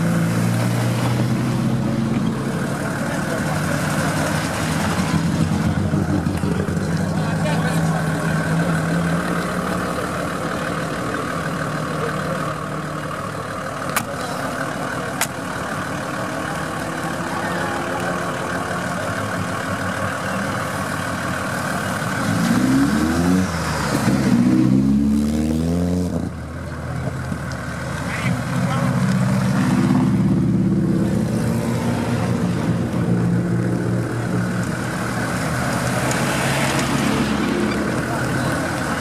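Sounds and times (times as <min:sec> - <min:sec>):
engine idling: 0:01.2 - 0:22.2
car engine revving hard: 0:21.5 - 0:26.3.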